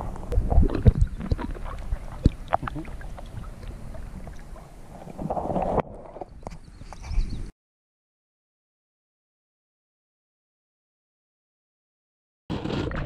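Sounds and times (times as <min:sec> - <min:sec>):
wind rumble on microphone: 0:00.0 - 0:07.5
paddle splashes and drips: 0:00.1 - 0:06.5.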